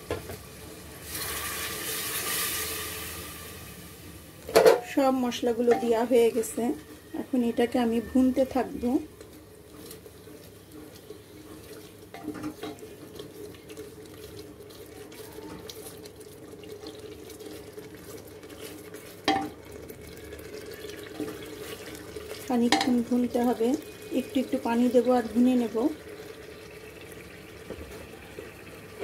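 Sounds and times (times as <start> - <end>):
masala sizzling and bubbling: 0.0 - 29.0
spatula knocking on pot: 5.6 - 6.1, 19.3 - 19.6, 22.6 - 23.0.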